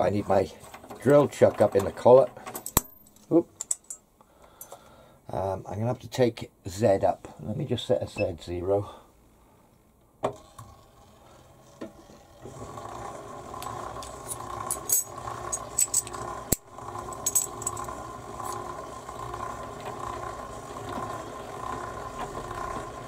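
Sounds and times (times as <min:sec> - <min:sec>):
metal tooling clinks and rattles: 0:02.4 - 0:04.0, 0:14.2 - 0:17.9
milling machine motor humming: 0:10.3 - 0:23.0.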